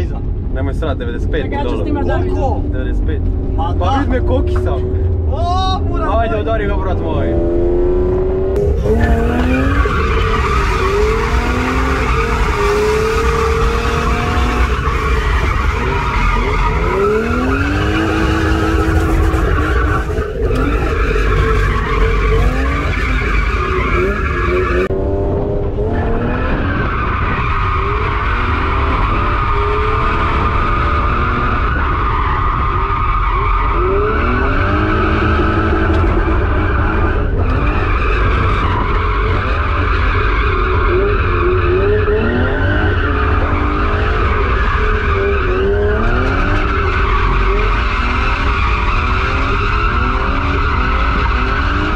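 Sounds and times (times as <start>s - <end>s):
car engine revving: 0.0s - 51.9s.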